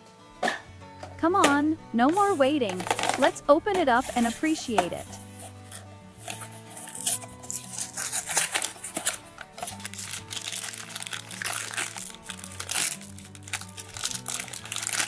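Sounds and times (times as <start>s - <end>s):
light background music: 0.0s - 15.0s
plastic bag crinkling: 5.1s - 15.0s.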